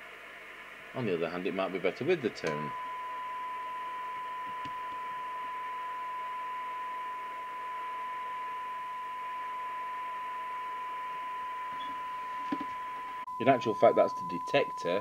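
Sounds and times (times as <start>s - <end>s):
radio hiss: 0.0s - 2.8s
steady test tone: 0.9s - 15.0s.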